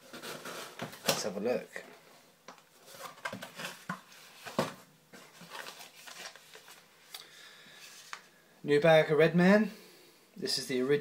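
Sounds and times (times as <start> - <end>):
packaging rustling and crinkling: 0.0 - 1.6, 2.7 - 7.2.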